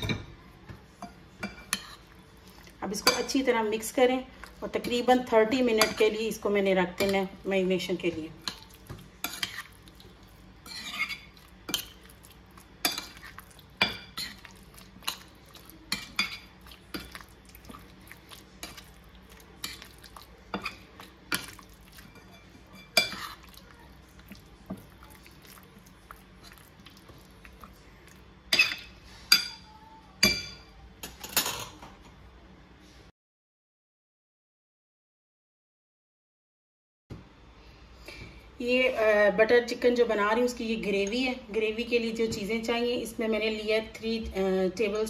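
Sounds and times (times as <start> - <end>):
spoon scraping ceramic plate: 10.6 - 12.0, 22.1 - 23.5.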